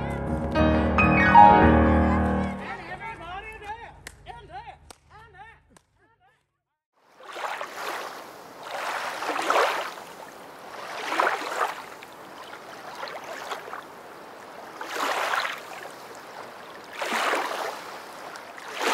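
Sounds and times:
rushing water: 0:07.0 - 0:18.9.

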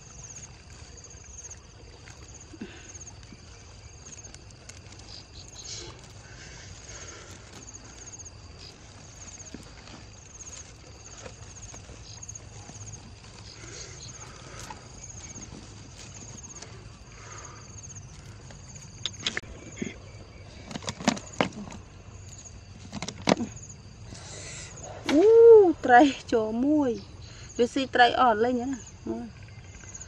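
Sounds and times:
insects chirping: 0:00.0 - 0:30.0
mesh net bag rustling: 0:00.1 - 0:19.3
bamboo trap clacking: 0:19.0 - 0:19.5.

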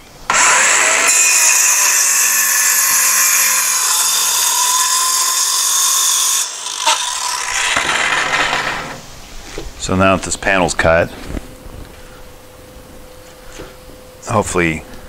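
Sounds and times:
circular saw cutting plywood: 0:00.3 - 0:09.1.

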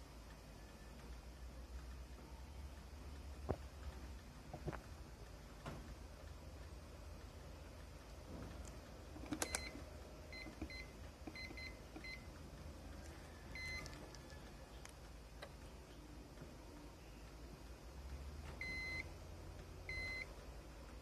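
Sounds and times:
sharp click: 0:08.4 - 0:09.8
multimeter long beep: 0:09.4 - 0:12.3, 0:13.4 - 0:13.9, 0:18.6 - 0:19.1, 0:19.9 - 0:20.3
multimeter short beeps: 0:09.4 - 0:12.3, 0:18.6 - 0:19.1, 0:19.9 - 0:20.3.

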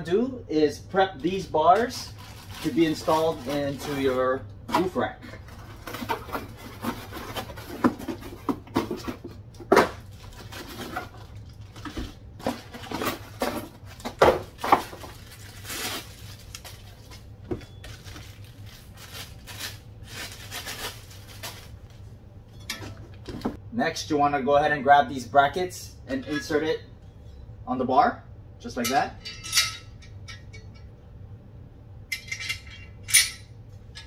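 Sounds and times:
plastic wrapping crackling: 0:01.8 - 0:04.2, 0:13.8 - 0:21.9.

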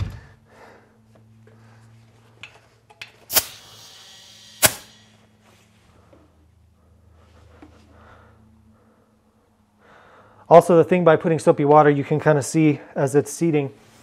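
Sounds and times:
air hissing into tire: 0:03.3 - 0:05.2.

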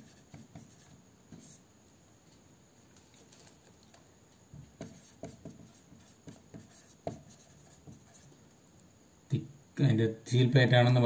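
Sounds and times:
marker pen writing on whiteboard: 0:00.0 - 0:01.6, 0:04.6 - 0:08.4.

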